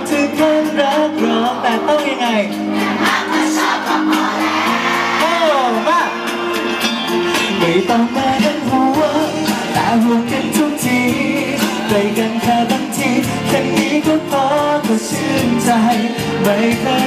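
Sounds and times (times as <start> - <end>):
man singing into microphone: 0.0 - 2.7, 5.2 - 6.3, 7.3 - 17.0
pop backing track with beat: 0.0 - 17.0.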